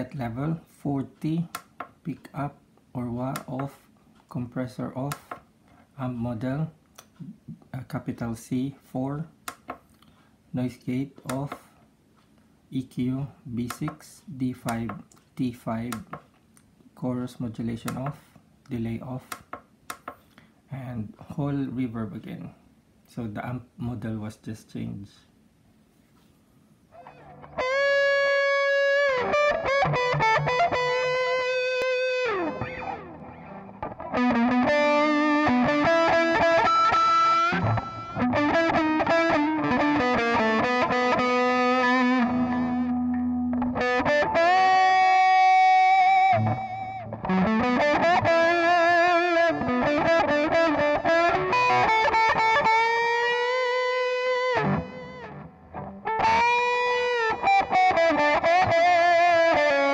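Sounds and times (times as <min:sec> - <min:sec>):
overdriven electric guitar melody: 0:27.0 - 0:59.9.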